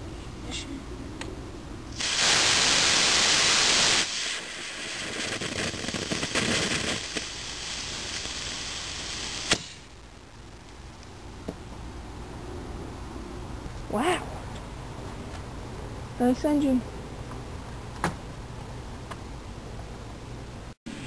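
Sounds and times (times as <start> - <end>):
rocket motor rushing hiss: 1.9 - 10.2
crackling hiss: 1.9 - 11.9.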